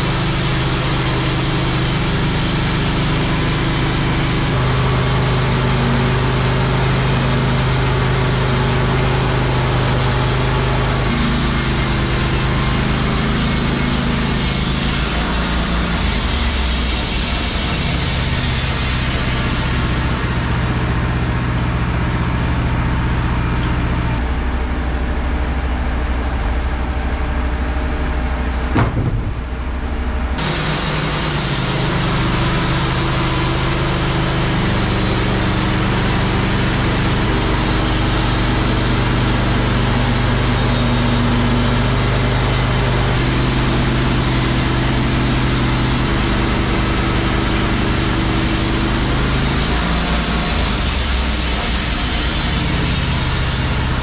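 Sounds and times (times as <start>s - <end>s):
sawmill engine running: 0.0s - 54.0s
brief knock: 28.7s - 29.6s.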